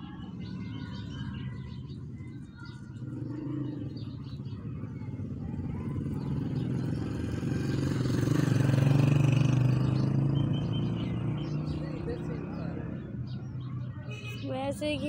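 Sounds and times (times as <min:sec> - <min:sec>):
vehicle engine passing: 0:03.0 - 0:13.6.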